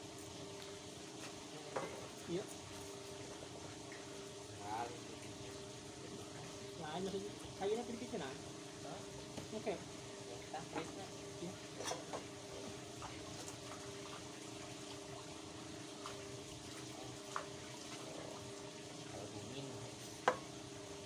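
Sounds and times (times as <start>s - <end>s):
faint steady hum: 0.0s - 21.0s
water sloshing and splashing: 11.7s - 19.1s.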